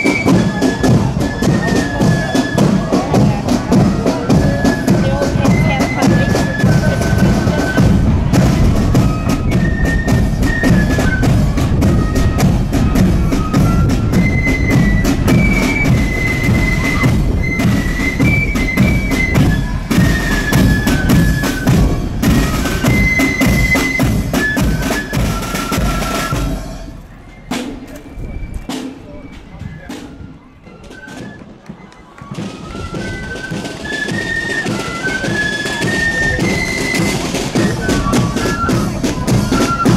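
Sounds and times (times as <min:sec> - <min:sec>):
rattling side drums: 0:00.0 - 0:30.2
flutes playing in unison: 0:00.0 - 0:39.9
bass drum: 0:05.1 - 0:17.5.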